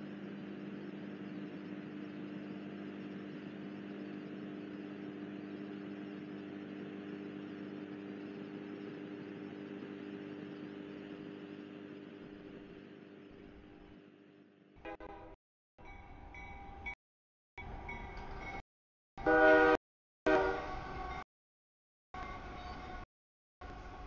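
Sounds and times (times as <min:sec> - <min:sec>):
engine drone: 0:00.0 - 0:14.1.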